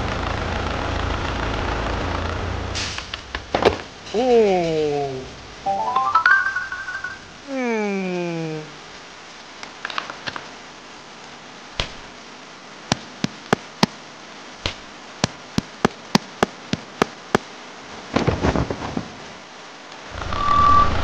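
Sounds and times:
rain hissing: 0.2s - 6.6s
crackling rustle: 8.9s - 20.3s.

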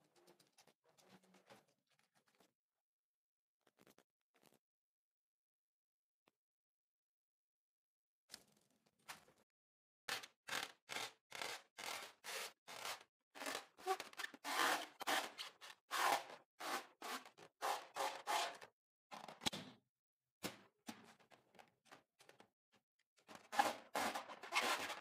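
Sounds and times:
squeaky rubbing of wet balloon: 13.5s - 16.2s.

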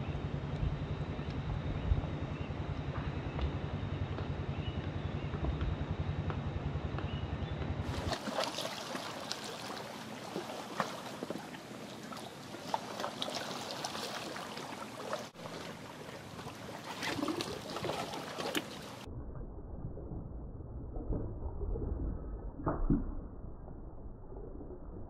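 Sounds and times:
low pulsing rumble: 0.0s - 25.0s
seawater lapping among rocks: 7.9s - 19.1s.

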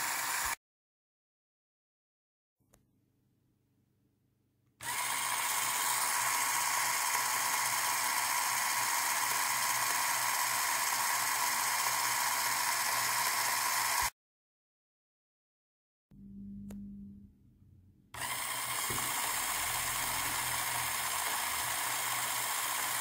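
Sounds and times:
small electric motor whirring: 0.0s - 0.6s, 4.8s - 14.1s, 18.2s - 23.0s.

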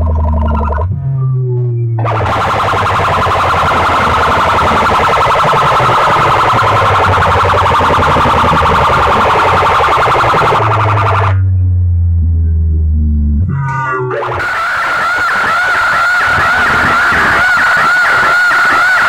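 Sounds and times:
loudspeakers blasting pulsing siren tone: 0.0s - 19.0s.

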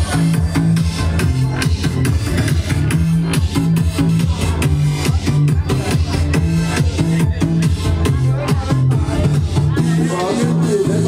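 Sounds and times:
electronic dance music: 0.0s - 11.0s.

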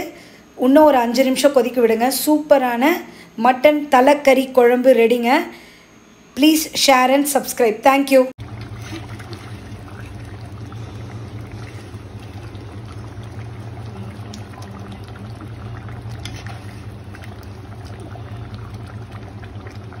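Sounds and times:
steady low hum: 8.3s - 20.0s
curry bubbling in a pot: 8.4s - 20.0s.

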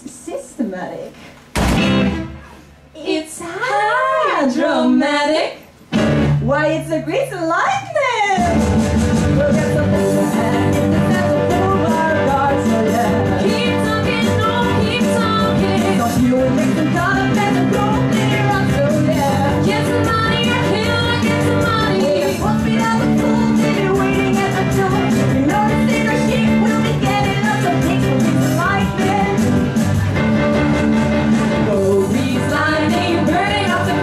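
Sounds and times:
rock band playing: 1.7s - 2.4s, 5.9s - 6.4s, 8.4s - 34.0s
women singing: 3.1s - 5.6s, 9.3s - 29.6s, 31.6s - 34.0s.

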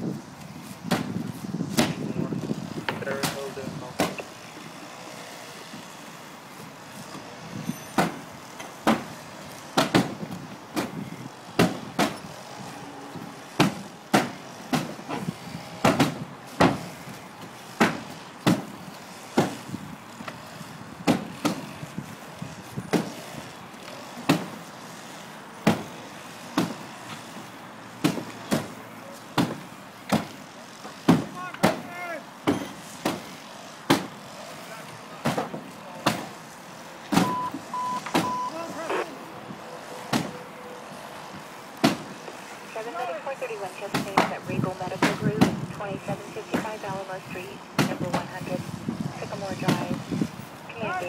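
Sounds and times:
axe chopping through plywood: 1.7s - 2.1s, 8.0s - 8.2s, 8.8s - 9.1s, 9.8s - 11.0s, 11.6s - 12.2s, 13.6s - 15.2s, 15.8s - 16.9s, 17.8s - 18.7s, 21.1s - 21.6s, 22.9s - 23.2s, 24.3s - 24.6s, 28.0s - 28.7s, 29.4s - 30.4s, 31.1s - 31.8s, 32.4s - 33.3s, 33.9s - 34.1s, 35.2s - 36.3s, 41.8s - 42.1s.

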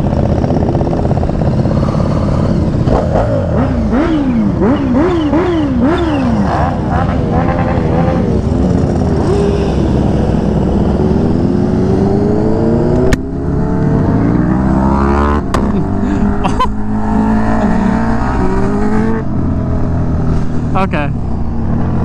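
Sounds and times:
motorcycle accelerating: 0.0s - 22.0s
sharp crack at gear shifts: 12.9s - 13.3s.

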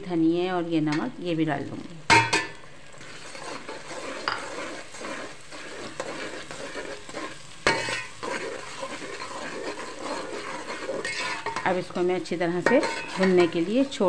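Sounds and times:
oil sizzling: 0.0s - 14.0s
spoon scraping metal pot: 3.0s - 14.0s
spoon clanking against pot: 4.2s - 4.5s, 12.6s - 13.6s.

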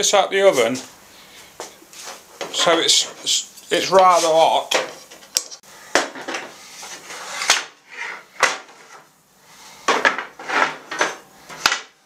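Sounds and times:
timber and metal knocking and clattering: 9.9s - 12.0s.

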